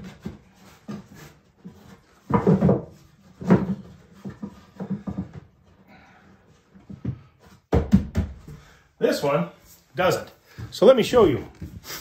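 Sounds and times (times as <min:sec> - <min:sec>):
wooden box sides clunking: 0:00.0 - 0:05.7.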